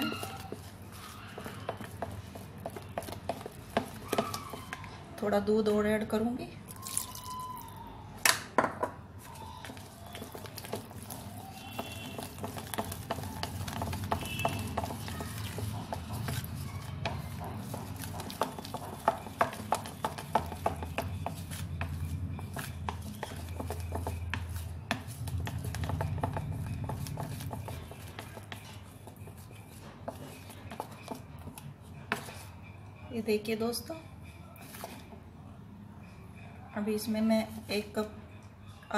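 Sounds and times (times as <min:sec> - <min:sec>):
spatula stirring thick batter: 0:00.0 - 0:06.1, 0:09.2 - 0:33.4, 0:34.2 - 0:35.3.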